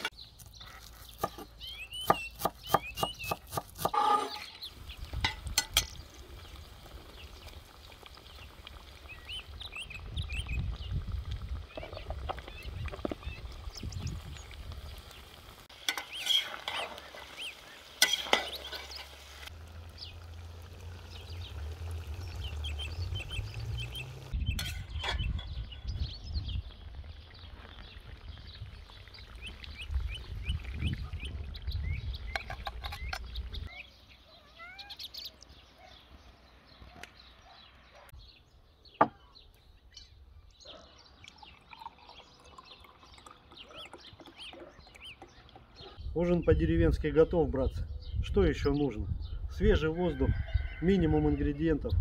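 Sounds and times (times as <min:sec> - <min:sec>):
birds chirping and singing: 0:00.0 - 0:19.2, 0:19.8 - 0:52.0
food sizzling and bubbling in a pot: 0:04.0 - 0:32.4.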